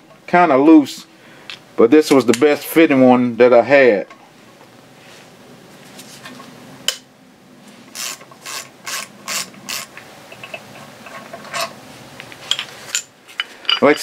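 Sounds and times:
hand ratchet clicking: 7.9 - 10.6.

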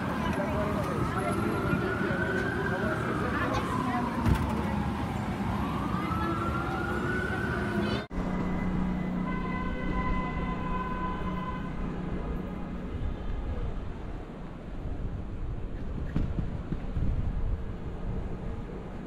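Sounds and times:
emergency siren wailing: 0.0 - 14.8
street traffic noise: 0.0 - 19.0.

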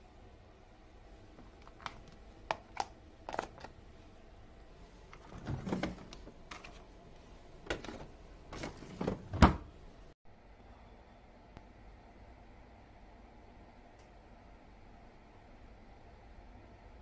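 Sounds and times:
freezer drawer sliding: 5.2 - 6.3, 7.7 - 9.7.

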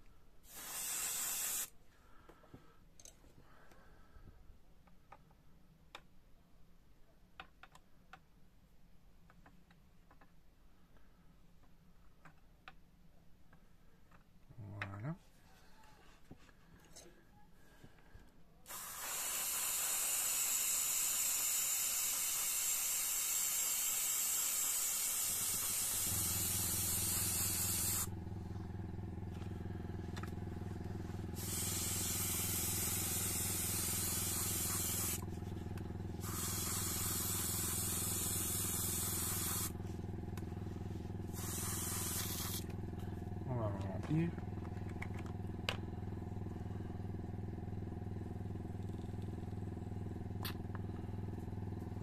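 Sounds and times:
air compressor humming: 0.0 - 1.7, 18.7 - 52.0
airbrush spraying: 0.4 - 1.7, 18.7 - 28.1, 30.6 - 35.6, 36.2 - 39.9, 41.0 - 42.8.

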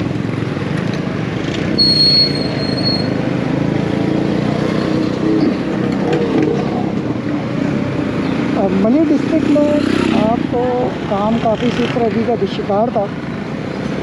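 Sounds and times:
passing motorcycles: 0.0 - 14.0
high thin squeal: 1.8 - 3.2.

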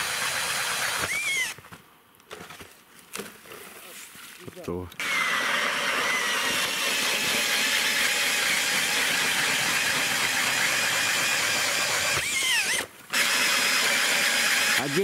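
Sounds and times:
drill motor whine: 0.0 - 1.6, 5.0 - 15.0.

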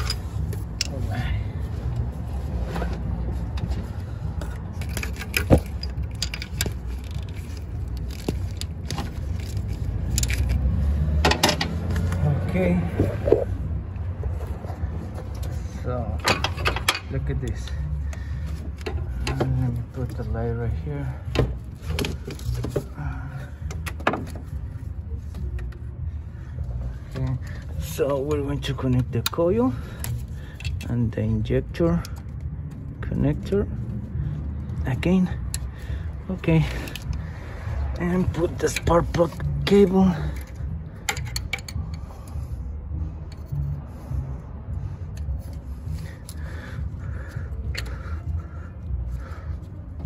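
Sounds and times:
sharp clicks and knocks of parts: 0.0 - 1.1, 2.8 - 12.2, 16.2 - 20.2, 21.2 - 23.0, 23.6 - 24.6, 28.0 - 31.0, 35.4 - 36.1, 36.7 - 37.3, 38.0 - 42.1, 45.1 - 48.4.

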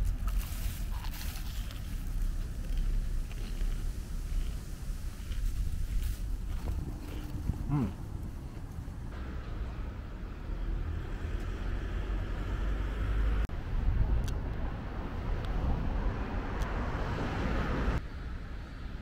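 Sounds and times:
tyre noise: 0.0 - 9.2
passing vehicles rumble: 0.0 - 19.0.

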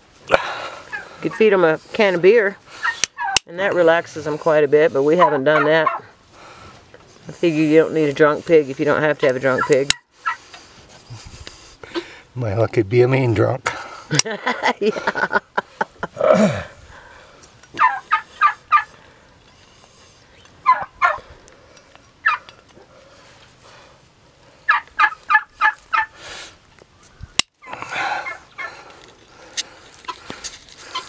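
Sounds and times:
farmyard fowl calling: 0.0 - 6.6, 7.7 - 11.0, 17.7 - 21.3, 22.2 - 23.8, 24.5 - 31.0
hoof nippers snapping: 2.8 - 3.6, 9.2 - 10.7, 14.1 - 14.3, 24.7 - 31.0.

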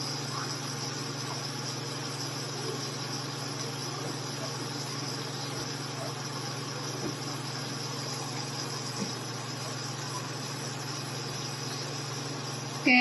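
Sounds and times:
low steady hum: 12.7 - 13.0.

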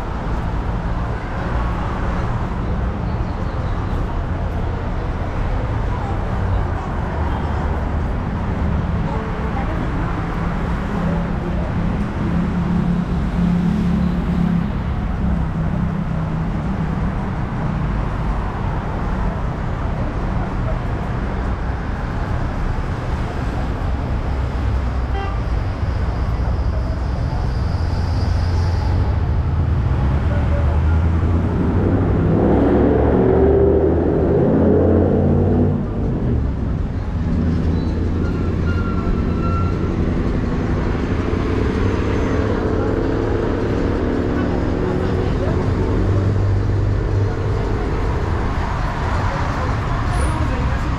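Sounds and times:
city street traffic rumble: 0.0 - 50.9
loud vehicle engine passing: 26.7 - 50.9.

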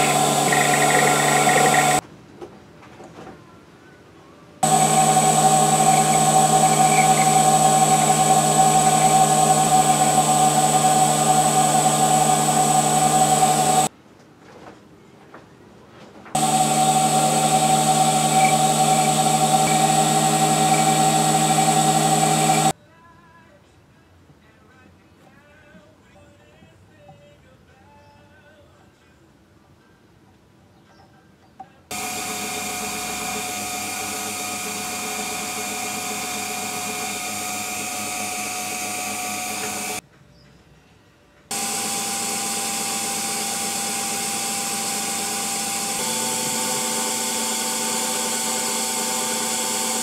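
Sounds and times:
file against spinning metal: 0.0 - 2.0, 4.6 - 13.9, 16.4 - 22.7, 31.9 - 40.0, 41.5 - 50.0
lathe motor running: 0.0 - 2.0, 4.6 - 13.9, 16.4 - 22.8, 31.9 - 40.0, 41.5 - 50.0.

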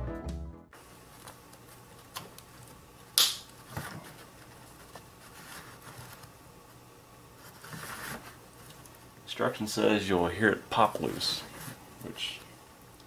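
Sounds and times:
sharp plastic pop: 3.2 - 3.5.

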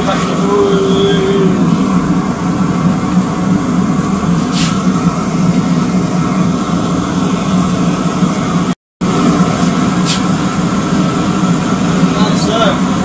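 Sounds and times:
workshop machinery roar: 0.0 - 13.0
short hiss: 4.4 - 4.8, 10.0 - 10.3.

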